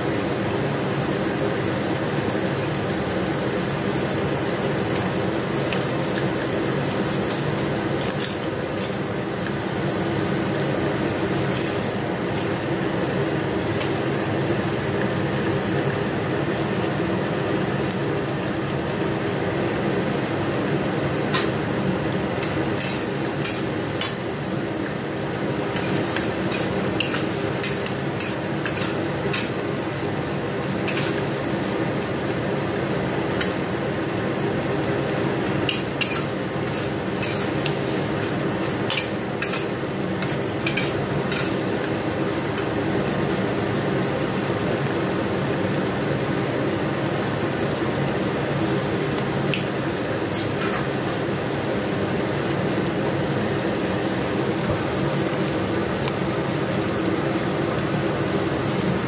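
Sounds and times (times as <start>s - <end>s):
vegetables sizzling in a wok: 0.0s - 59.0s
metal spatula scraping a wok: 25.8s - 29.6s, 30.9s - 31.2s, 35.7s - 37.6s, 38.9s - 41.6s.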